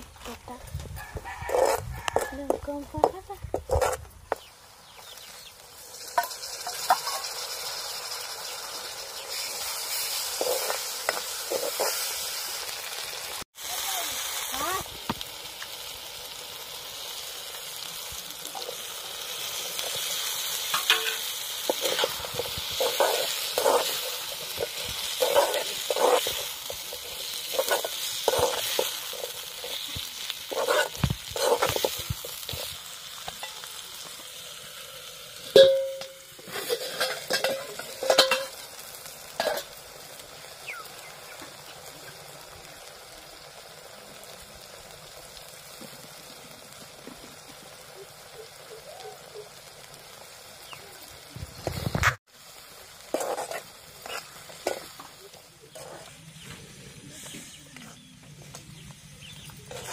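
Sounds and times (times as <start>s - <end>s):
food sizzling in a wok: 0.0s - 59.9s
metal spoon scraping a pan: 1.0s - 4.4s, 5.9s - 12.6s, 18.6s - 33.7s, 35.5s - 39.9s, 53.0s - 56.2s, 59.7s - 59.9s.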